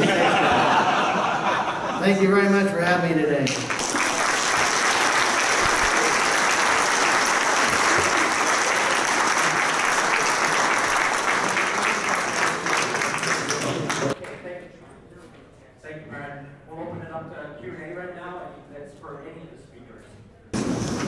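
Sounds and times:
audience applauding: 3.4 - 14.2.

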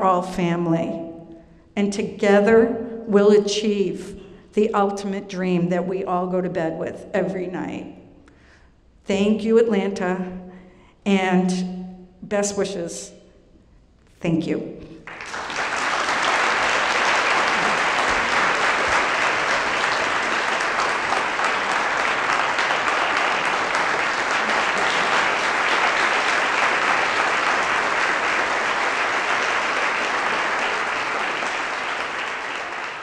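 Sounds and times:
audience applauding: 15.0 - 33.0.

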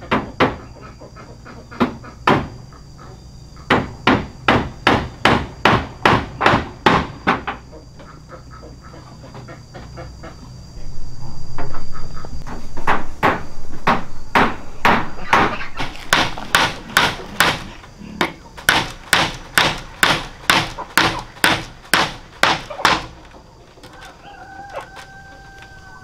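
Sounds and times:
hammer blows on bamboo: 3.7 - 7.6, 12.4 - 23.2.

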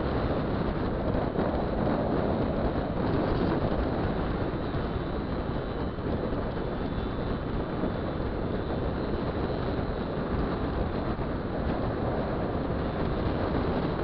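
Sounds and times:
wind rush on microphone: 0.0 - 14.0.

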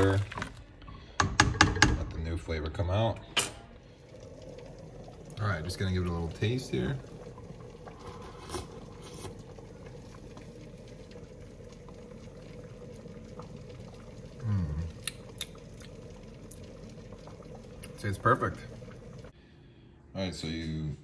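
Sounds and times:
person humming mm: 14.4 - 15.0.

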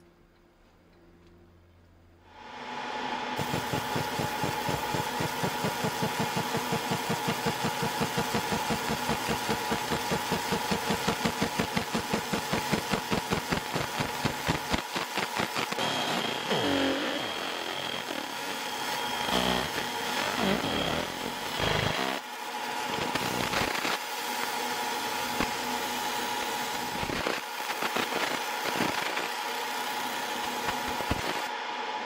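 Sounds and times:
laser engraver buzzing: 3.4 - 31.5.

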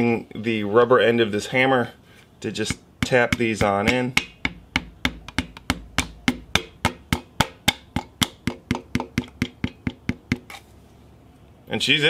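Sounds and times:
rubber hammer tapping piston: 2.7 - 10.6.

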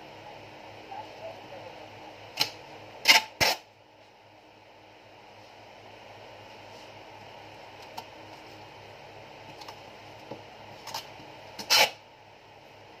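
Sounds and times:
packing tape ripping off roll: 2.4 - 3.7, 10.8 - 12.0.

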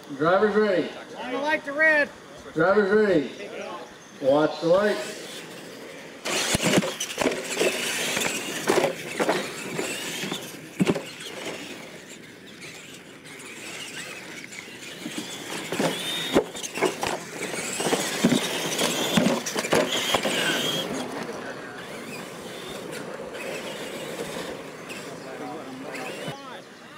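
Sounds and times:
electric motors whining: 0.0 - 26.9
toy trucks knocking on landing: 6.3 - 11.9, 13.7 - 25.1.

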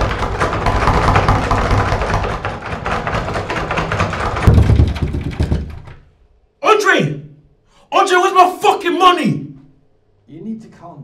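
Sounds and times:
heavy thump on door: 0.0 - 6.1
banging and rattling on door: 0.0 - 6.2.

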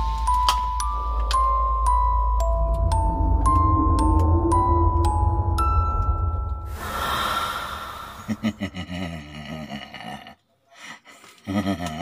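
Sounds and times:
rushing whoosh: 2.5 - 8.4
woman laughing: 8.3 - 10.4, 11.2 - 12.0.

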